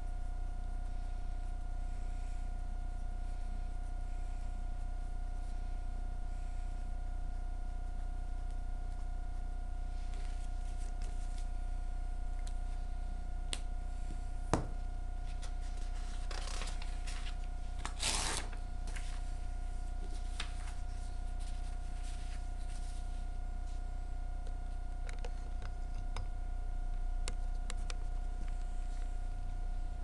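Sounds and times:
steady hum: 0.0s - 30.0s
paper sheets rustling: 15.2s - 19.4s, 20.0s - 23.2s.

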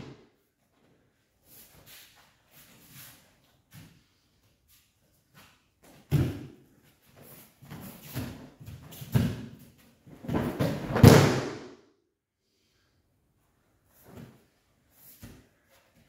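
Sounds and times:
body slamming onto mat: 10.2s - 11.7s.

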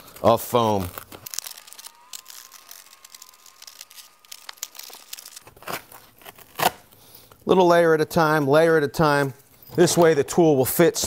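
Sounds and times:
foam crackling and tearing: 0.0s - 7.0s.

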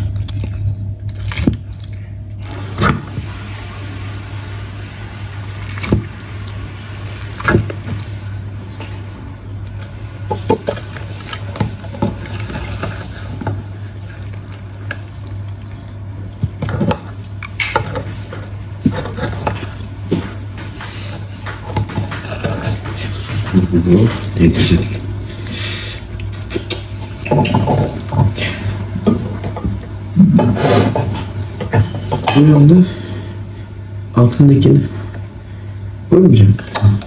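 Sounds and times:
pasta squishing: 0.0s - 33.5s
steady low hum: 0.0s - 37.0s
utensils scraping a baking dish: 30.4s - 32.5s.

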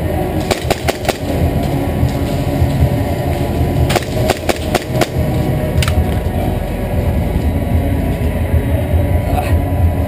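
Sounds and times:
steady low rumble: 0.0s - 10.0s
airsoft gunfire snaps: 0.5s - 1.4s, 3.9s - 5.2s.

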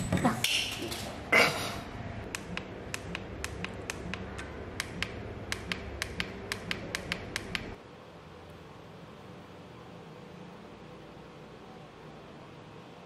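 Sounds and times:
sharp irregular clicks: 2.3s - 7.8s.

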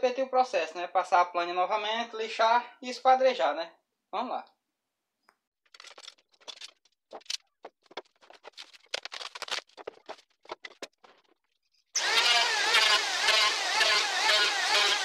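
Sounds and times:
bar clamps scraping and knocking: 5.7s - 7.4s
electric hand planer running: 12.0s - 15.0s.

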